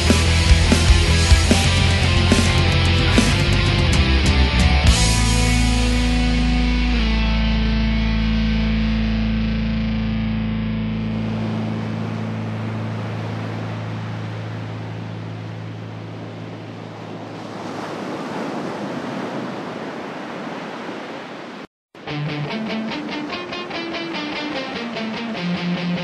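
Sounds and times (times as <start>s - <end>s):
distorted electric guitar chord: 0.0s - 12.6s, 22.0s - 26.0s
picked guitar notes: 0.0s - 12.9s, 22.0s - 26.0s
rushing noise wash: 10.6s - 26.0s.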